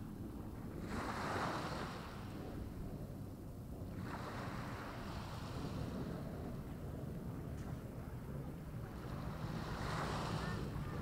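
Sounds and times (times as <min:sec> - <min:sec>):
small waves breaking on beach: 0:00.7 - 0:02.4, 0:03.9 - 0:06.2, 0:08.8 - 0:11.0
steady low rumble: 0:04.9 - 0:11.0.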